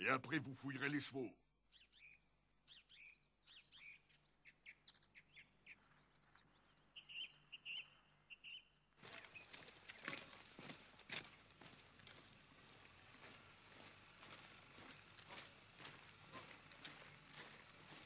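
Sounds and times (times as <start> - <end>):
faint bird chirps: 1.5 - 9.6
boots marching on pavement: 9.0 - 18.0.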